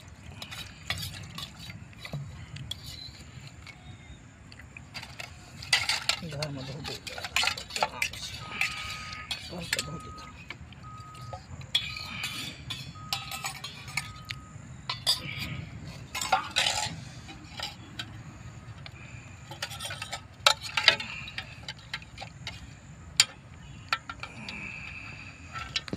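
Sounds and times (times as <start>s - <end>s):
metal spoon clinking on bowl: 5.1s - 10.5s, 11.1s - 15.5s.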